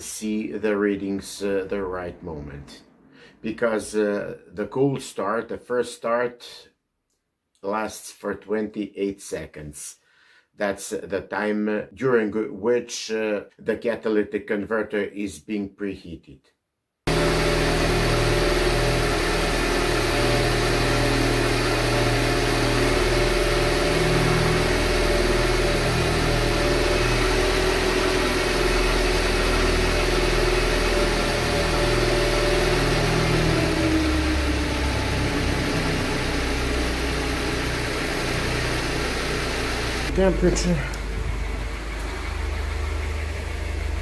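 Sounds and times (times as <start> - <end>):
car engine idling: 17.1 - 44.0.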